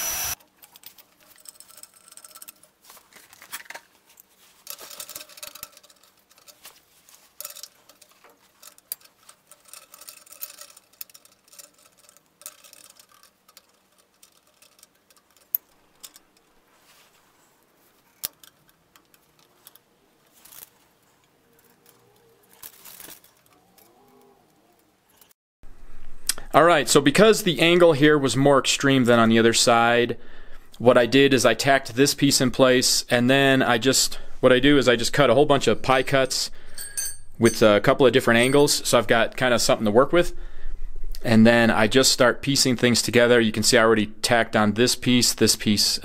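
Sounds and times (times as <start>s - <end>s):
metal tubes clicking and scraping: 0.3s - 25.4s, 30.8s - 40.4s
magnets snapping onto metal tube: 0.4s - 16.6s, 17.9s - 25.3s.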